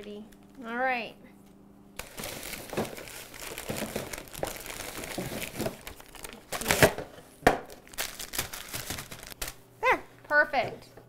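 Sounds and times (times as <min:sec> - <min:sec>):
paper packets crinkling and rustling: 0:02.0 - 0:09.6.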